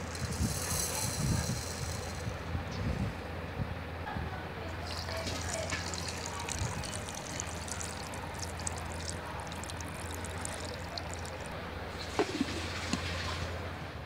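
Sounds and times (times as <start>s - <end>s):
milk pouring into a jar: 4.8s - 13.1s.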